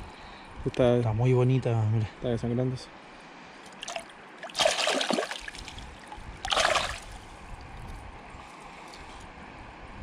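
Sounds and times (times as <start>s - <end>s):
water splashes: 3.7s - 7.2s
river rushing: 3.8s - 7.1s.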